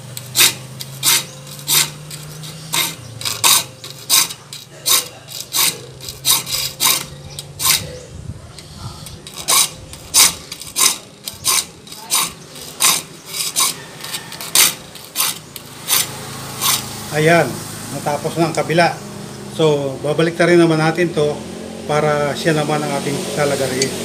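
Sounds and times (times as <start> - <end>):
hand file rasping on saw teeth: 0.0 - 17.0.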